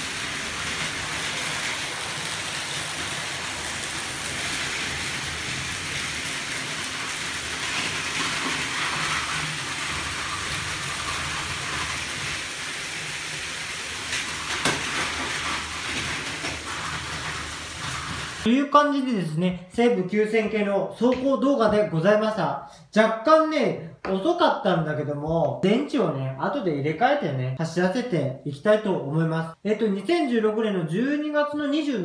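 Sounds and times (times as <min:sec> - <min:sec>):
plastic wheels rattling on rails: 0:00.0 - 0:18.5
toy train motors whirring: 0:00.0 - 0:18.5.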